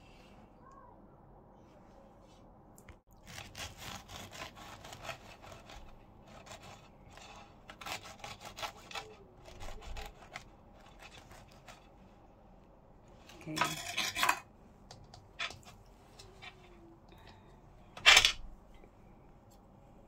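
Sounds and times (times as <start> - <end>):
knife sawing through crusty scone: 3.2 - 12.1.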